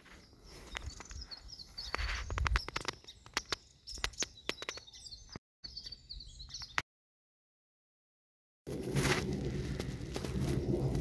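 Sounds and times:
faint high chirping: 0.0 - 6.8
footsteps crunching dry leaves: 8.7 - 11.0.

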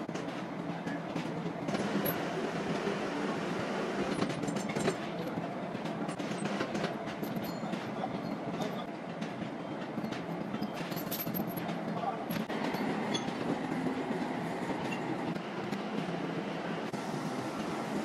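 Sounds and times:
factory machinery running: 0.0 - 18.0
machinery clicks and knocks: 4.1 - 13.6.

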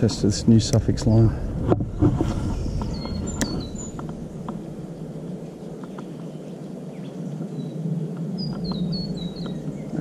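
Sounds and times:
high bird chirps: 2.6 - 4.2, 8.4 - 10.0.

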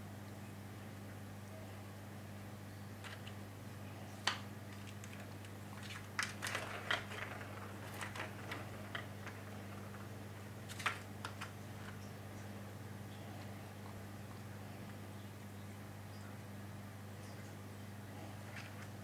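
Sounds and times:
ball clicking in plastic track: 3.0 - 3.4, 4.2 - 12.0.

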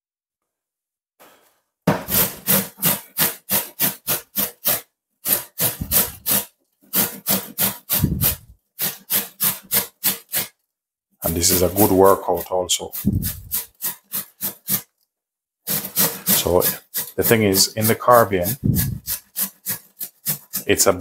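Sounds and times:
carrot grated on metal grater: 2.1 - 10.5, 11.3 - 14.9, 15.7 - 21.0.

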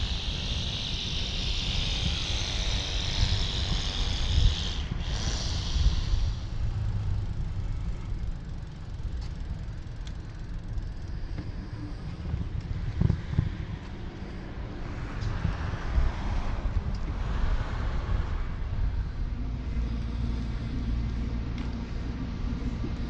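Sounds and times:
road hiss: 0.0 - 8.2, 13.9 - 23.0
wind buffeting microphone: 0.0 - 23.0.

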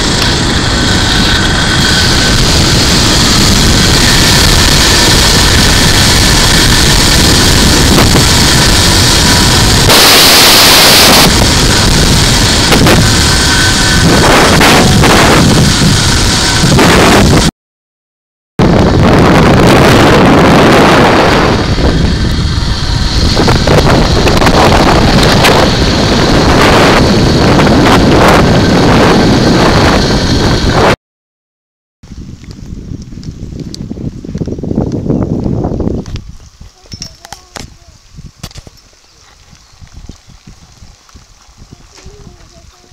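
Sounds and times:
wind rushing over microphone: 0.0 - 17.5, 18.6 - 31.0, 32.0 - 42.9.

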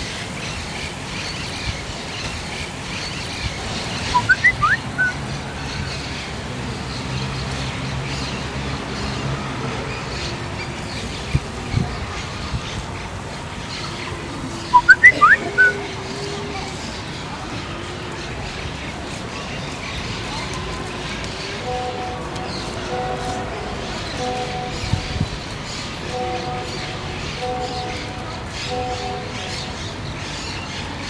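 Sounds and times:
outdoor background noise: 0.0 - 31.0
phone message alert chirps: 4.2 - 5.1, 14.8 - 15.8.

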